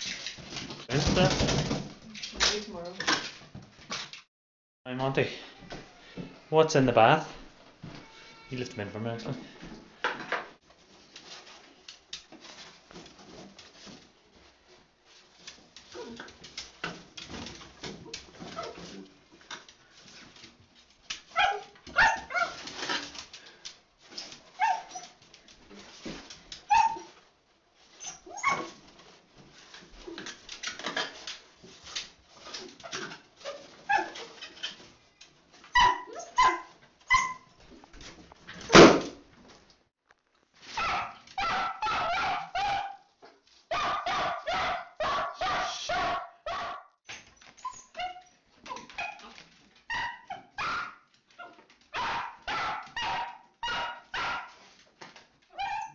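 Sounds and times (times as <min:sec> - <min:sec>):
dog barking: 0:21.4 - 0:22.6, 0:40.8 - 0:43.0, 0:43.7 - 0:47.0, 0:52.0 - 0:54.6.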